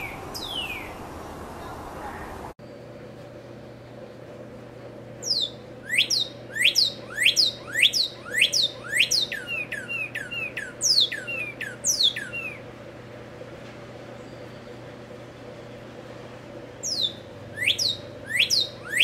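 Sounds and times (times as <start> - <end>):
cardinal singing clear whistles: 5.3 - 12.6, 16.9 - 19.0.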